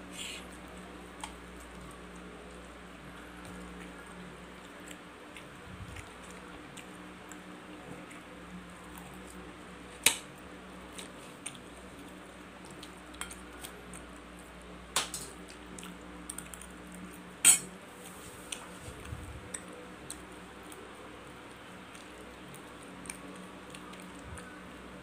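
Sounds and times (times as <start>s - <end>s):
faint steady hum: 0.0s - 25.0s
knife and fork clinking on plate: 17.4s - 17.7s.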